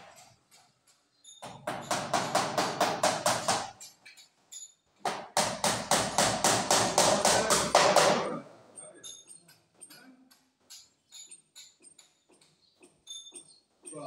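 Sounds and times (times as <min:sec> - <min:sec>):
hammer driving nails into wood: 0:01.4 - 0:03.8, 0:05.0 - 0:08.4.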